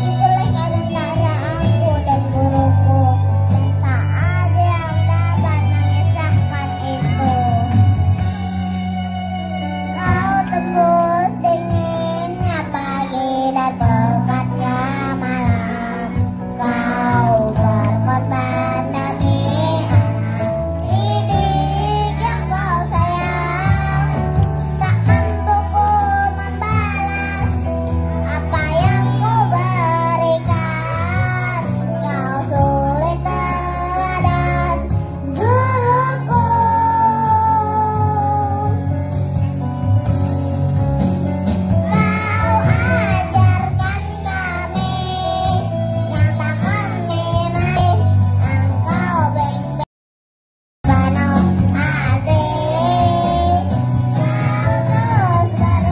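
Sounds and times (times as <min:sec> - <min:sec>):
instrumental accompaniment: 0:00.0 - 0:49.8, 0:50.8 - 0:55.9
children's choir singing: 0:41.8 - 0:47.8.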